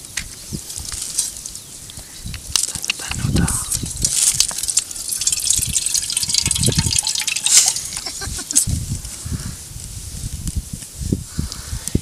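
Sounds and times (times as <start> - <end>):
wet scraping and squelching: 2.5 - 8.7.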